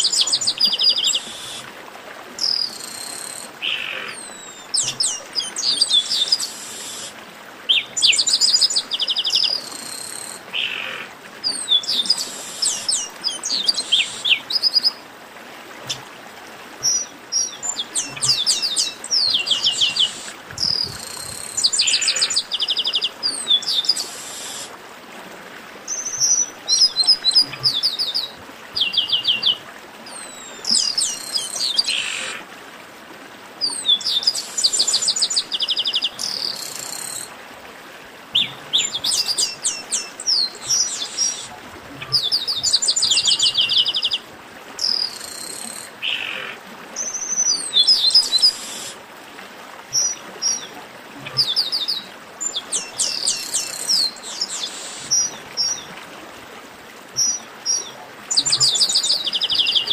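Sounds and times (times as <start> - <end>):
blackbirds singing trills: 16.8 - 24.7, 38.4 - 44.2, 51.3 - 55.9.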